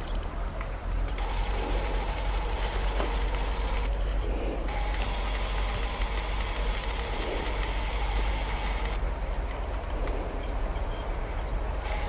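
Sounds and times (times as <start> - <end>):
steady low rumble: 0.0 - 12.0
camera autofocus motor whirring: 1.2 - 9.0.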